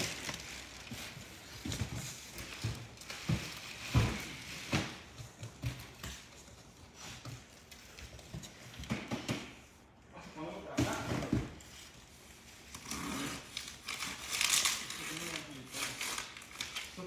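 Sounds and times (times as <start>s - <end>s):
knocks and thumps on boxes: 8.5s - 9.6s, 10.7s - 11.7s.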